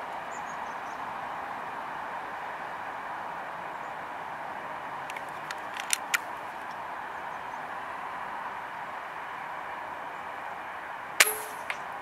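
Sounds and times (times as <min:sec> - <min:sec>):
outdoor background hiss: 0:00.0 - 0:12.0
sharp clicks: 0:05.1 - 0:06.3.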